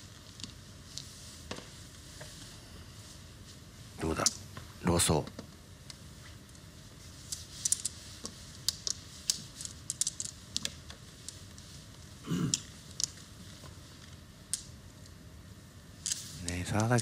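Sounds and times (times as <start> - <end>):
mahjong tiles clicking: 7.4 - 11.6, 12.5 - 13.3, 16.1 - 17.0.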